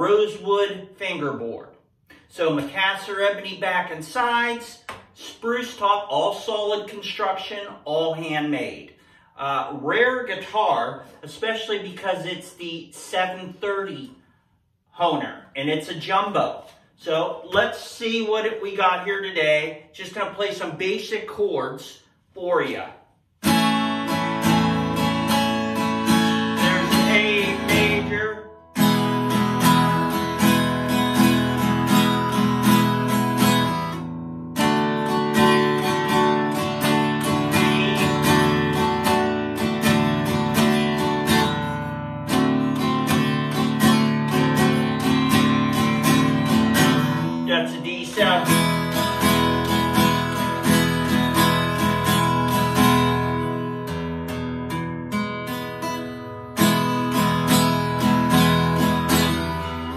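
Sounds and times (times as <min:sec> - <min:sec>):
acoustic guitar strumming chords: 0:23.4 - 0:59.9.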